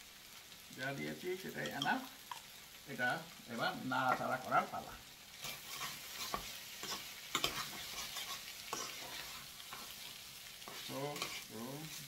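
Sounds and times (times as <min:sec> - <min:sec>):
food sizzling: 0:00.0 - 0:12.0
metal spatula scraping pan: 0:05.4 - 0:12.0.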